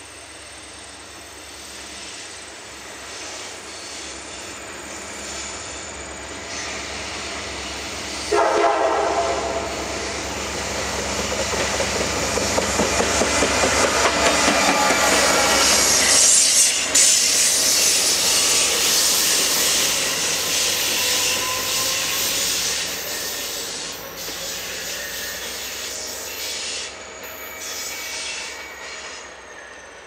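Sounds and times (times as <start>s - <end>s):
locomotive wheel and rail hiss: 0.0s - 30.0s.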